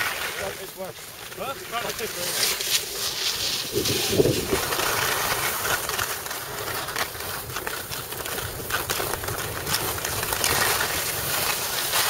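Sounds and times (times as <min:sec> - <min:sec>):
skis scraping over snow: 0:00.0 - 0:12.0
wind buffeting microphone: 0:03.5 - 0:05.2.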